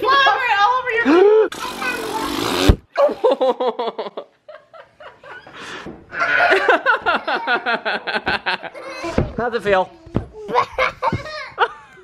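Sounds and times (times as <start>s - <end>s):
breathy puff: 1.5s - 2.8s
hearty laughter: 3.0s - 9.2s, 10.5s - 12.0s.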